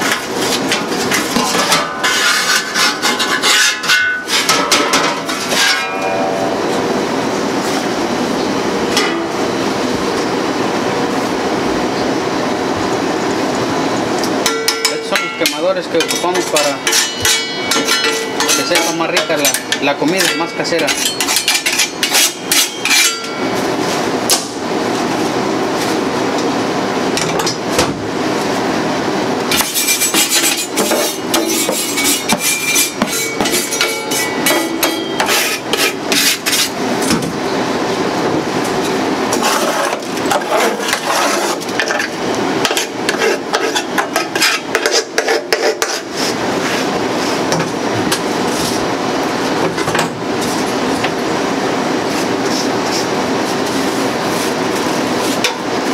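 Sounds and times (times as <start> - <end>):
metallic scraping: 1.3 - 7.8, 29.6 - 36.8.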